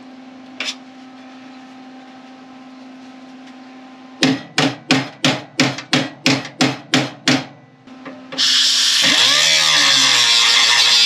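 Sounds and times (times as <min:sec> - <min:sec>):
angle grinder cutting metal: 0:08.4 - 0:11.0.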